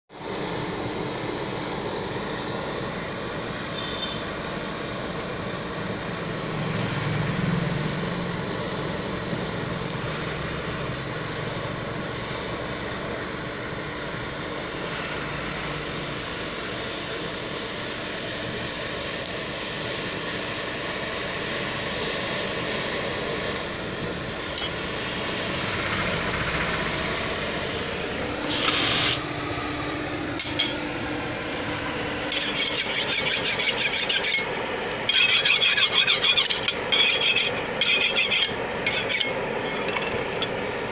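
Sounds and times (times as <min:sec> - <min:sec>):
forge fire rushing: 0:05.4 - 0:32.4
blade rasping on anvil: 0:24.6 - 0:24.8, 0:30.4 - 0:30.8, 0:32.3 - 0:40.6
loud metal scrape: 0:32.3 - 0:40.7.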